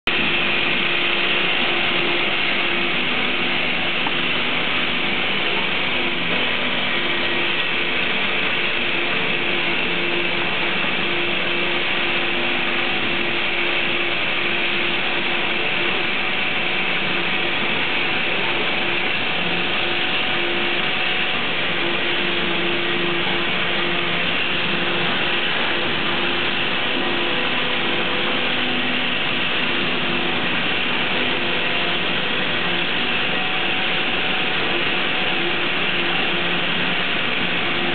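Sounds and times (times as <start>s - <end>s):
conveyor mechanical clatter: 0.1s - 37.9s
faint machine hum: 0.1s - 37.9s.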